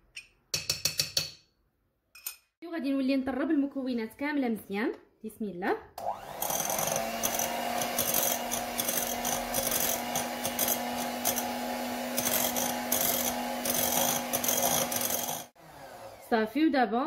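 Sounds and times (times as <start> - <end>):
electric hand mixer hum: 6.0 - 16.5
beaters scraping glass bowl: 6.4 - 15.6.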